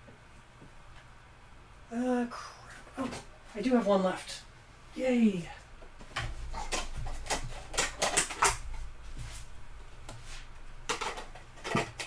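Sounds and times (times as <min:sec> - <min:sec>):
plastic containers clattering: 0:10.9 - 0:12.0.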